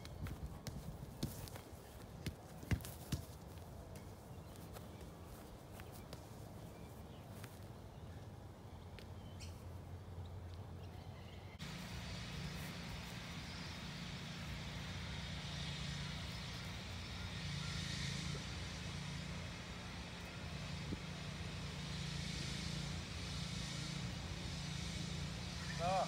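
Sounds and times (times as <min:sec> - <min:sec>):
low engine drone with hiss: 0:11.6 - 0:26.0.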